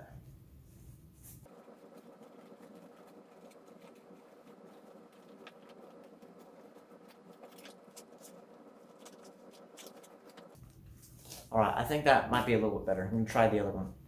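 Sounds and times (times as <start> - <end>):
cardboard crackling and creaking: 2.4 - 10.6.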